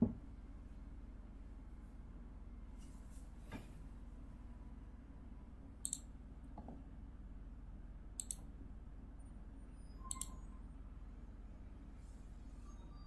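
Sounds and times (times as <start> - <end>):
computer mouse double-clicks: 5.8 - 6.1, 8.2 - 8.4, 10.1 - 10.4.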